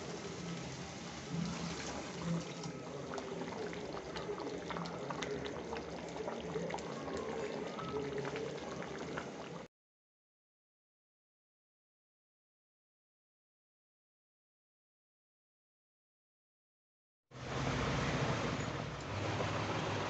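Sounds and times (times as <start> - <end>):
curry gravy bubbling and crackling: 0.0 - 9.7.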